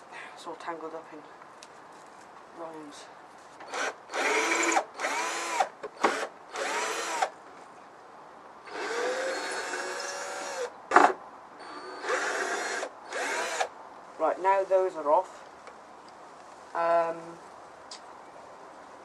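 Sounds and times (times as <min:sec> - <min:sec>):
cordless drill whirring: 0:03.7 - 0:07.3, 0:08.7 - 0:10.7, 0:11.6 - 0:13.7.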